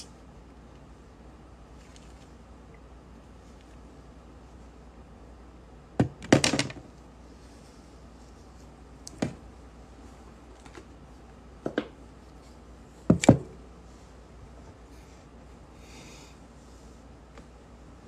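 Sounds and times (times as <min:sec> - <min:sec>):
soft rustle: 0:07.2 - 0:09.0, 0:12.1 - 0:13.1.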